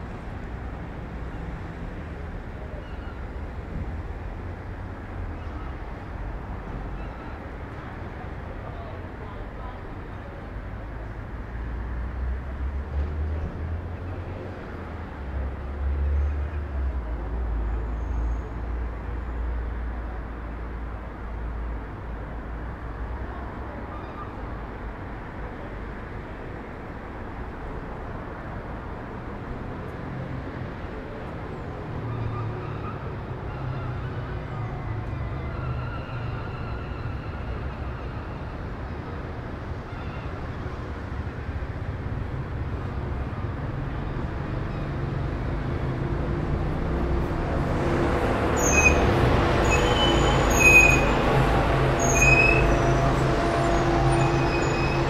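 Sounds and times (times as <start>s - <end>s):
traffic rumble: 0.0s - 55.0s
high-pitched squeals: 48.4s - 55.0s.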